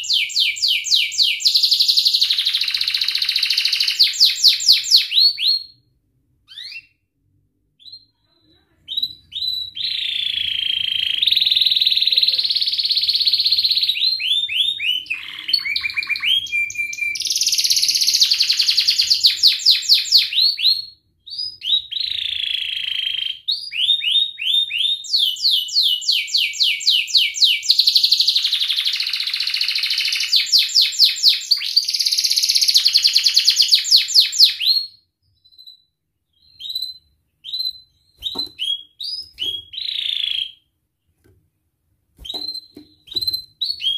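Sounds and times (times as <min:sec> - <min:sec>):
canary singing trills: 0:07.8 - 0:40.7, 0:42.2 - 0:43.9.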